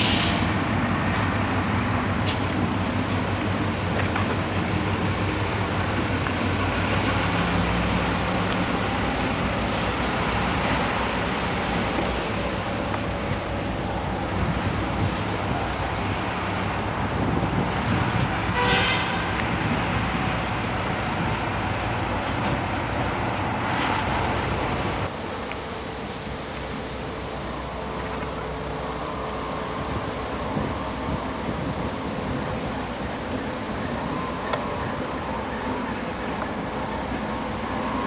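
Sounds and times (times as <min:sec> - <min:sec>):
diesel locomotive engine rumble: 0:00.0 - 0:38.0
locomotive horn toot: 0:18.3 - 0:20.2.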